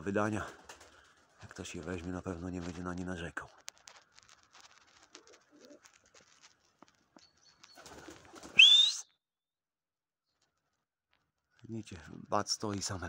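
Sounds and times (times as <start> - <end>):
rising whistle-like chirp: 8.6 - 9.1.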